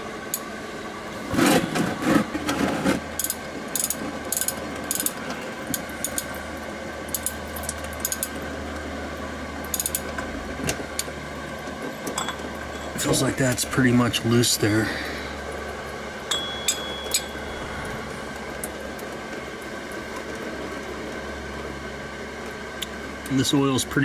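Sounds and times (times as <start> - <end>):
space heater humming: 0.0 - 24.0
ratchet clicking and rattling: 3.2 - 6.4, 7.1 - 8.4, 9.7 - 10.2.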